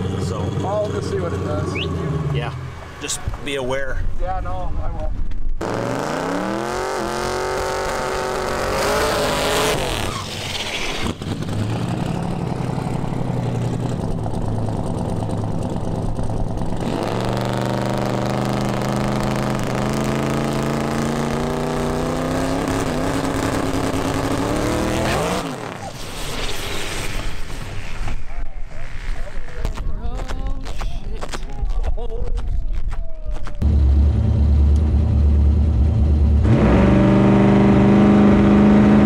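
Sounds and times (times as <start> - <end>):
car engine revving: 5.6 - 25.9, 33.6 - 39.0.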